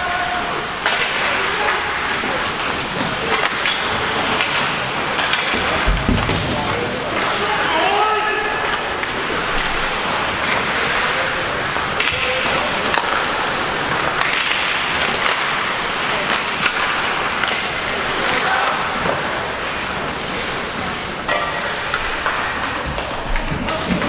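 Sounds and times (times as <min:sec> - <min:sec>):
skates scraping ice: 0:00.0 - 0:24.0
sticks and puck clicking: 0:02.6 - 0:05.7, 0:11.9 - 0:19.3, 0:21.3 - 0:24.0.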